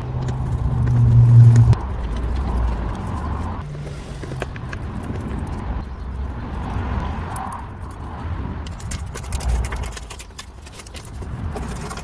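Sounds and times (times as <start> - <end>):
low rumble: 0.0 - 3.6.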